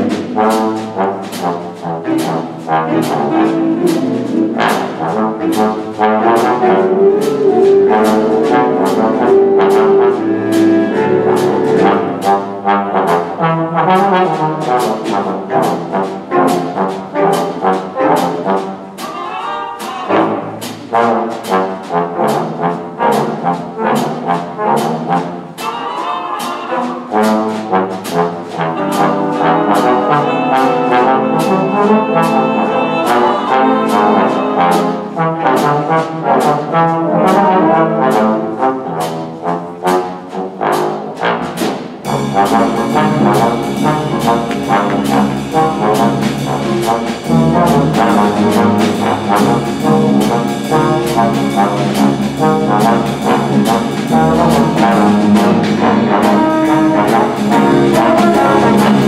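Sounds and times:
big band jazz: 0.0s - 59.0s
trombone solo: 0.0s - 59.0s
low bass line: 6.7s - 12.5s.

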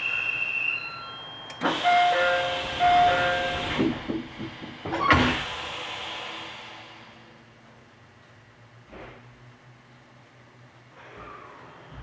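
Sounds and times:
train doors thudding shut: 2.8s - 5.5s
knocks: 3.8s - 5.2s
pneumatic air hiss: 4.9s - 7.2s.

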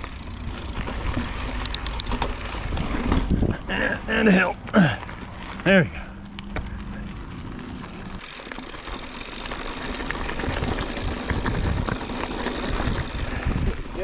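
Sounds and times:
bike rattling and clicking: 0.0s - 14.0s
tyres crunching on loose rock: 4.3s - 14.0s.

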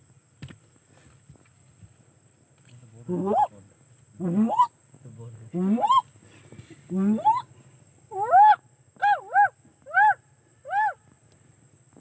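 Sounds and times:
fox pup high yelps: 8.1s - 11.0s.

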